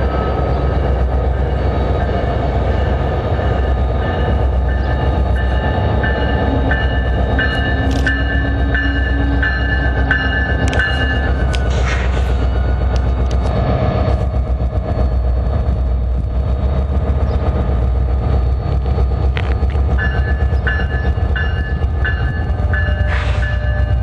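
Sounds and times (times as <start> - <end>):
train rumbling: 0.0 - 24.0
bell ringing: 4.0 - 11.4, 20.0 - 24.0.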